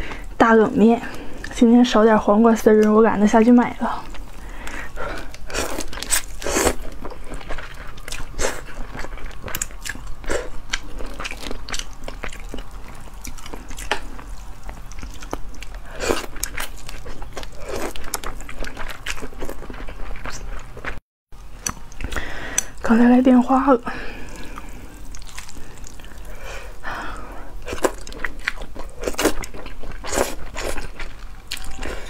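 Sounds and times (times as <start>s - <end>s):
slurping and chewing noodles: 4.0s - 21.0s, 24.0s - 32.0s.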